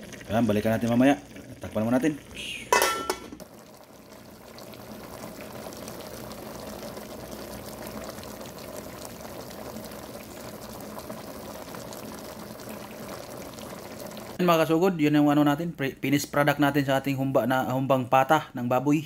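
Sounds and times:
sauce bubbling in a pot: 0.0 - 14.5.

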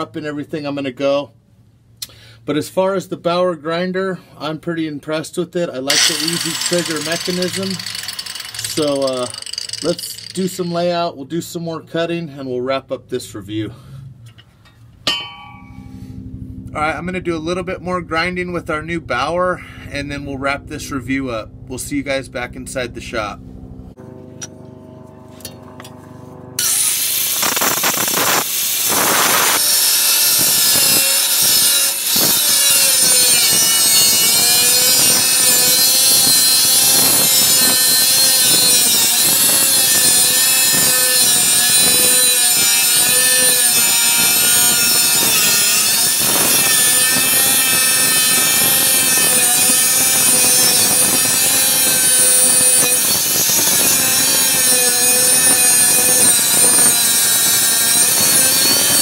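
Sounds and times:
angle grinder cutting steel: 5.9 - 10.9, 26.6 - 59.0.

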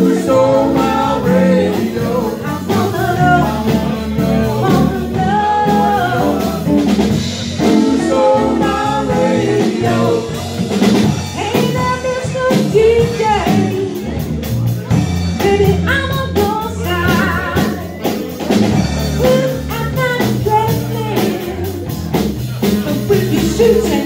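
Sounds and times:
woman singing: 0.0 - 6.9, 7.6 - 10.4, 11.4 - 14.1, 15.4 - 18.0, 19.2 - 21.9, 22.9 - 24.0
bass: 0.0 - 24.0
drum kit: 0.0 - 24.0
electric guitar: 0.0 - 24.0.

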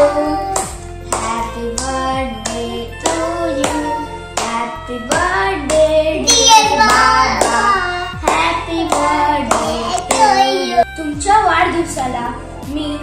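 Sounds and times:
children singing: 0.0 - 10.8
hands clapping in time: 0.5 - 10.4.

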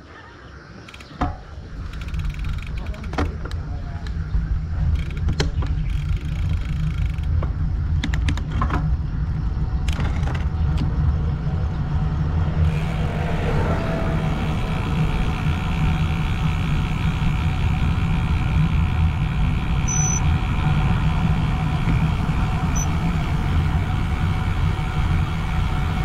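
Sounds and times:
bicycle clicks and rattles: 0.8 - 11.3, 12.6 - 26.0
wind buffeting microphone: 1.3 - 26.0.

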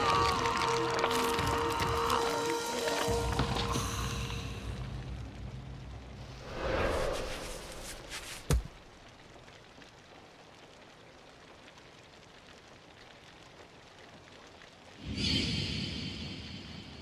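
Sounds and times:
whoosh: 6.2 - 8.5.

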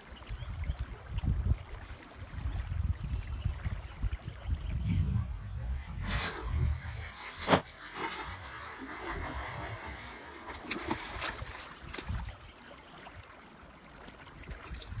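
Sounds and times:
water splashing and lapping: 0.0 - 15.0.

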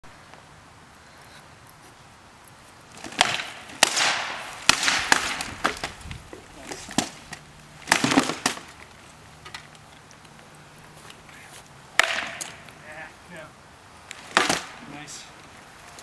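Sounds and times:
wooden swords striking shields: 3.0 - 8.8, 12.0 - 12.7, 14.2 - 14.9.

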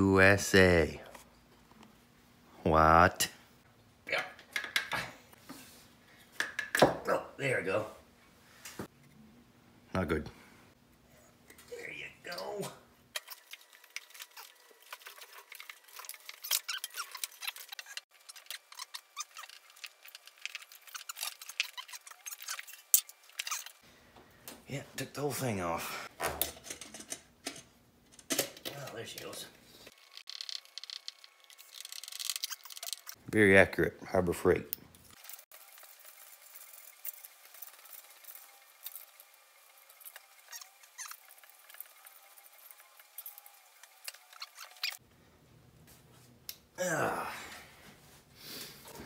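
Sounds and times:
metal hand tools clicking and scraping: 13.2 - 23.8, 29.9 - 33.2.

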